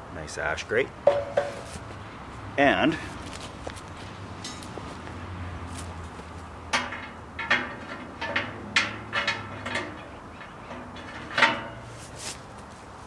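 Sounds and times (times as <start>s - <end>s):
metal clanks and clinks: 1.1s - 1.7s, 6.7s - 12.0s.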